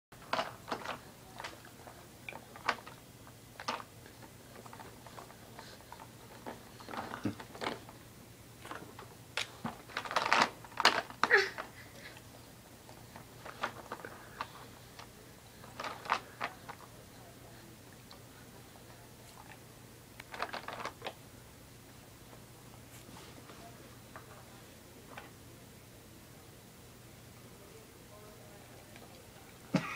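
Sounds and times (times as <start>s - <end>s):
plastic toys clicking and clattering: 0.2s - 3.0s, 3.6s - 8.0s, 8.6s - 12.2s, 12.9s - 16.9s, 20.2s - 21.2s.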